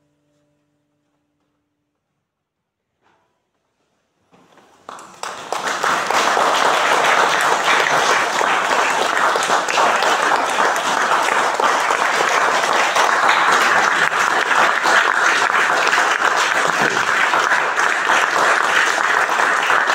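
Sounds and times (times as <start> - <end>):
sustained applause: 4.8 - 19.9.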